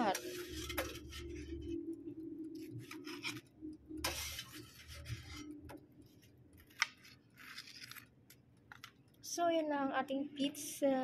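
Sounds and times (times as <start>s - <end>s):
metal utensil scraping basket: 0.0s - 1.4s, 4.0s - 5.4s.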